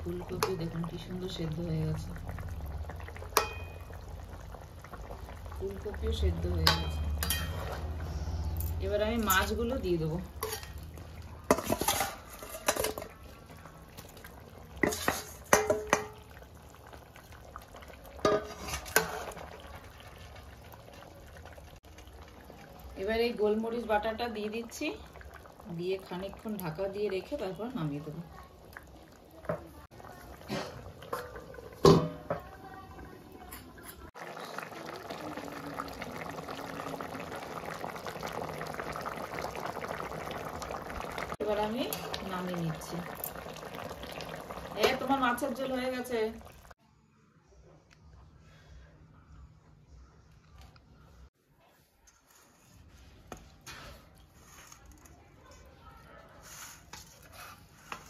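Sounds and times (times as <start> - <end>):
curry bubbling at the boil: 0.0 - 46.8
metal lid clanking onto pan: 6.6 - 7.8
ladle scraping metal pan: 10.3 - 13.2, 14.8 - 16.2, 18.2 - 19.6.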